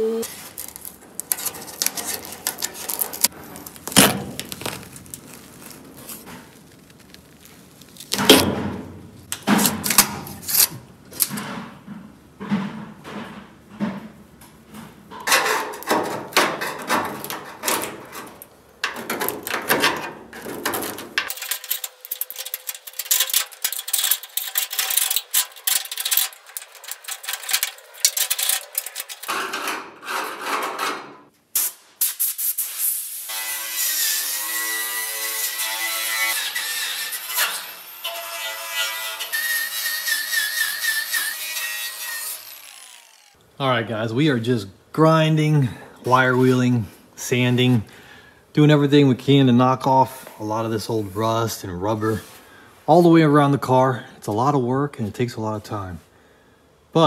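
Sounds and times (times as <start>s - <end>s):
hand tools scraping metal: 0.2s - 3.4s, 15.1s - 31.3s, 33.8s - 43.3s.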